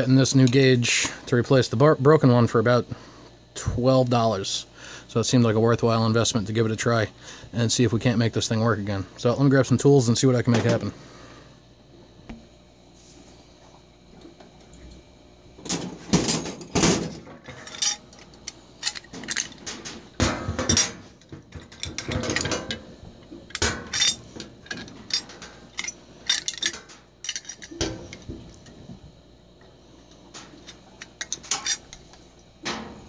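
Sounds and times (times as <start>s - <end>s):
metal tools clinking and clattering: 15.6s - 22.9s, 23.5s - 28.6s, 30.4s - 32.0s.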